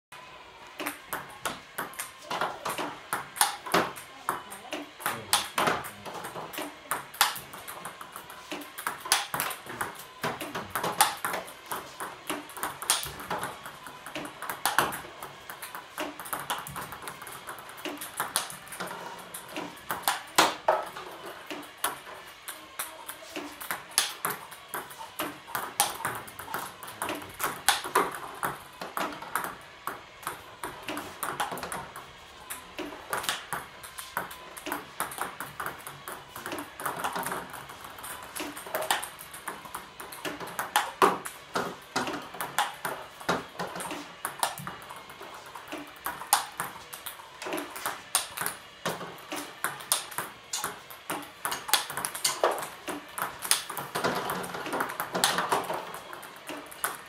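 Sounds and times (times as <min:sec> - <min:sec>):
table tennis ball clicking: 0:00.8 - 0:57.0.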